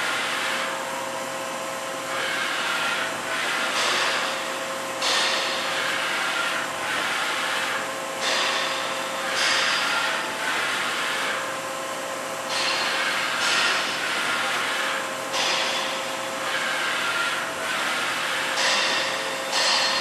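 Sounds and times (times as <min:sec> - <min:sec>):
machine hum: 0:00.0 - 0:20.0.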